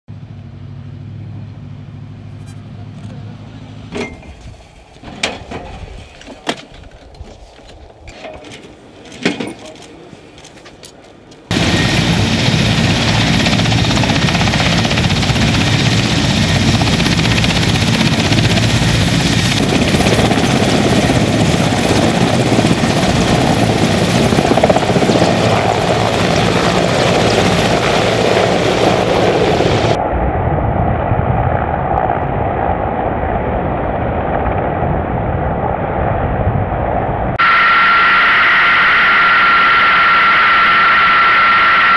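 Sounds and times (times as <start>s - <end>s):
helicopters flying over: 11.2s - 41.9s.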